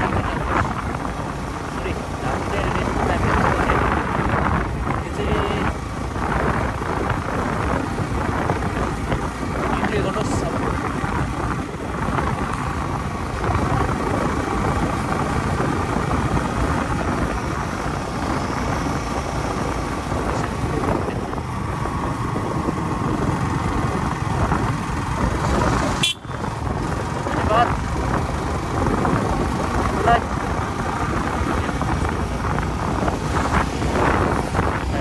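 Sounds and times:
motorcycle engine running: 0:00.0 - 0:35.0
wind on microphone: 0:00.0 - 0:35.0.

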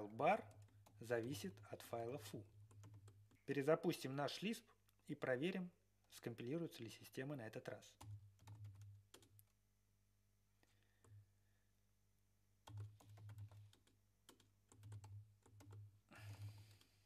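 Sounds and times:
faint keyboard typing: 0:00.0 - 0:03.6, 0:07.8 - 0:09.6, 0:10.6 - 0:11.3, 0:12.6 - 0:17.0.

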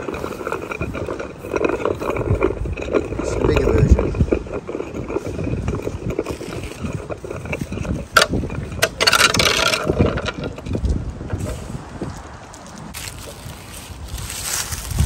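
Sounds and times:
metal disc spinning on tarmac: 0:00.0 - 0:11.6
wind buffeting microphone: 0:00.0 - 0:15.0.

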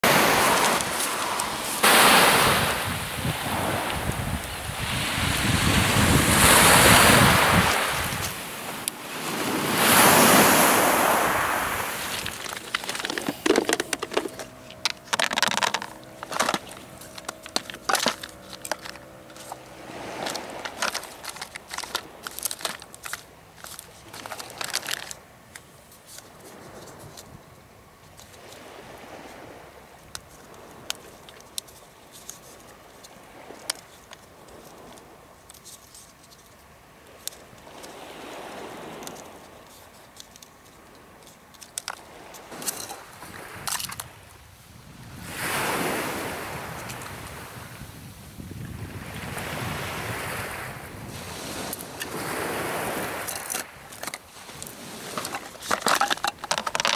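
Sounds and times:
waves lapping on pebbles: 0:00.0 - 0:27.2, 0:28.0 - 0:35.9, 0:36.9 - 0:56.9
plastic tackle box clicks: 0:12.1 - 0:19.6, 0:20.2 - 0:25.2, 0:53.3 - 0:56.9.

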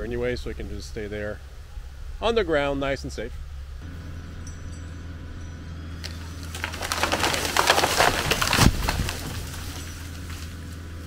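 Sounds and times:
tractor engine running: 0:00.0 - 0:11.0
tree hitting ground thud: 0:06.0 - 0:10.7
wood cracking and branches snapping: 0:06.0 - 0:11.0.

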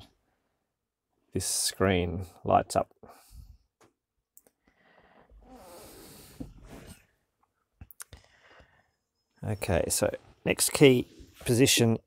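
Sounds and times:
person breathing: 0:03.0 - 0:03.7, 0:04.6 - 0:07.0, 0:08.1 - 0:09.1.

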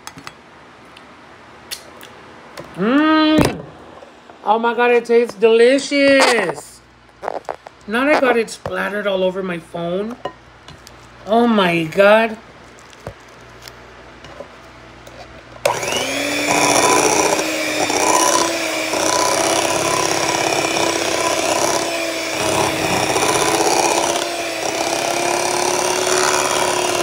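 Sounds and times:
beaters churning thick batter: 0:15.1 - 0:27.0
electric hand mixer running: 0:15.6 - 0:27.0.

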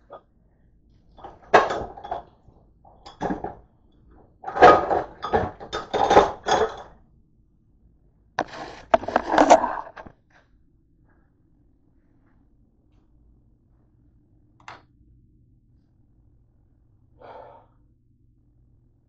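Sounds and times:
dishes clattering: 0:01.2 - 0:02.3, 0:04.4 - 0:06.9.

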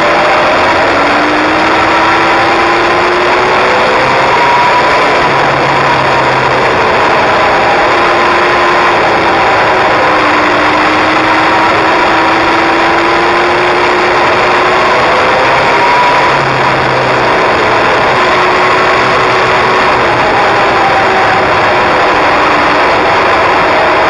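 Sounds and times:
motorcycle engine running: 0:00.0 - 0:24.0
wind and road rush: 0:00.0 - 0:24.0.

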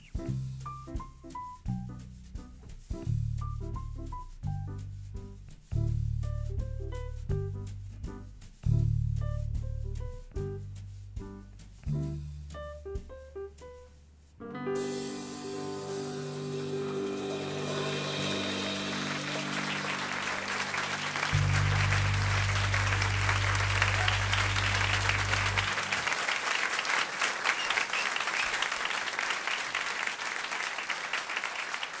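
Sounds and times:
live music final chord: 0:14.6 - 0:27.5
audience applause: 0:16.9 - 0:32.0.

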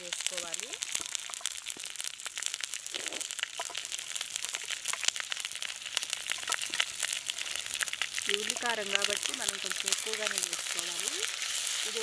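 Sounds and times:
hot oil sizzling and popping: 0:00.0 - 0:12.0.

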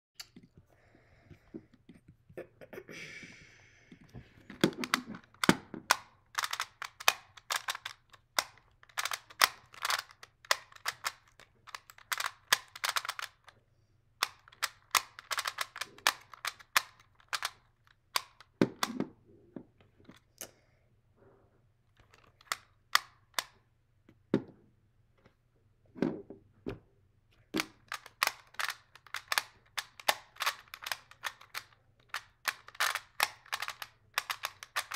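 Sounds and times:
puzzle dials clicking: 0:04.5 - 0:13.5, 0:14.2 - 0:19.0, 0:27.6 - 0:34.9.

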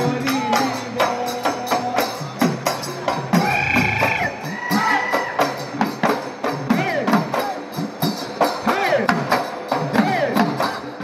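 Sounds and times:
drums beaten in a driving rhythm: 0:00.0 - 0:11.0
high melodic line: 0:03.3 - 0:04.8.

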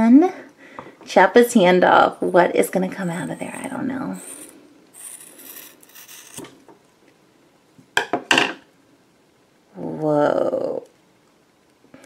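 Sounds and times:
scissors cutting rubber: 0:03.2 - 0:06.5.

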